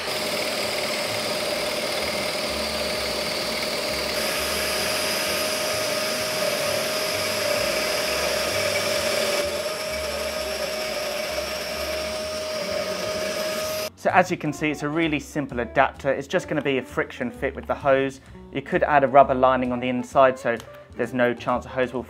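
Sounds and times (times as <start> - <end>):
scroll saw cutting plywood: 0.0 - 13.9.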